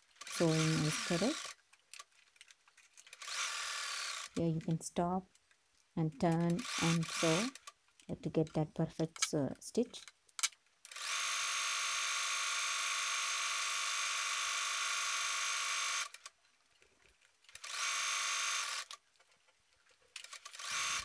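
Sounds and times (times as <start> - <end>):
sewing machine running: 0.2 - 1.5, 6.5 - 7.6, 20.4 - 21.0.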